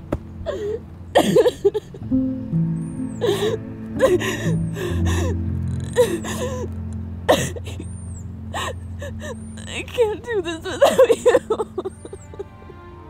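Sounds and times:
soft low music notes: 0.0s - 13.0s
woman sobbing: 0.4s - 2.0s, 3.2s - 6.7s, 7.3s - 7.8s, 8.5s - 12.8s.

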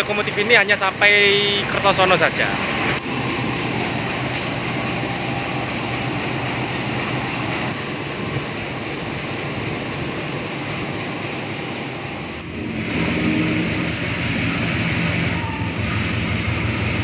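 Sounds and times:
locomotive engine idling: 0.0s - 12.5s.

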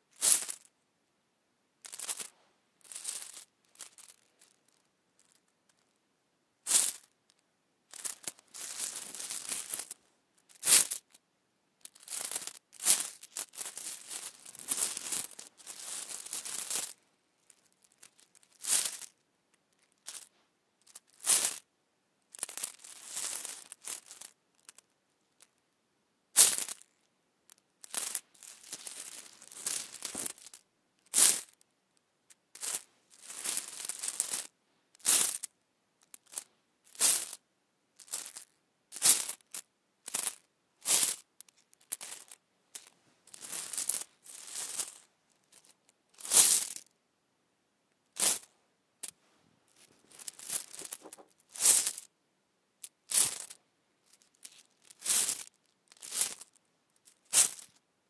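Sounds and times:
coins clinking and shuffling: 0.2s - 0.6s, 1.8s - 5.9s, 6.7s - 7.1s, 7.9s - 11.1s, 11.8s - 17.0s, 17.6s - 19.1s, 19.9s - 20.3s, 22.4s - 24.8s, 26.4s - 26.9s, 27.8s - 31.6s, 32.5s - 37.4s, 38.0s - 46.9s, 48.2s - 49.2s, 49.8s - 52.1s, 53.1s - 56.6s, 57.2s - 57.8s.

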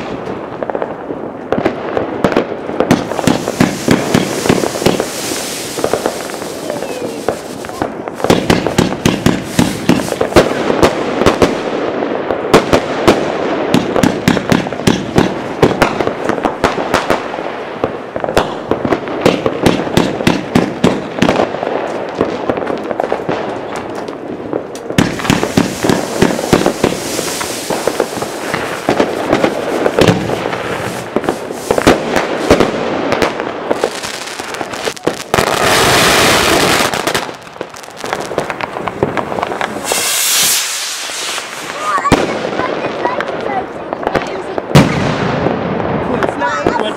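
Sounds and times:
fireworks and firecrackers exploding: 0.0s - 46.9s
loud steady hiss: 3.0s - 10.6s, 25.1s - 32.5s, 39.6s - 42.0s.

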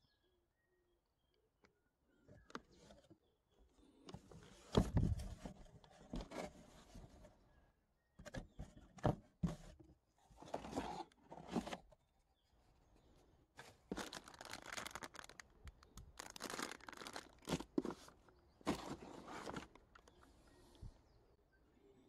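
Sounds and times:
cardboard rustling and scraping: 4.2s - 7.4s, 8.3s - 12.0s, 13.6s - 15.4s, 16.2s - 20.2s
plastic bags rustling: 13.8s - 18.1s.

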